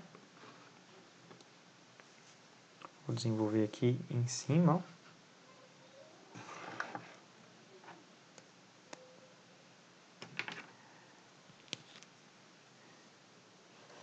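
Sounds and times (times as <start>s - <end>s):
pen scratching on paper: 6.4s - 7.2s.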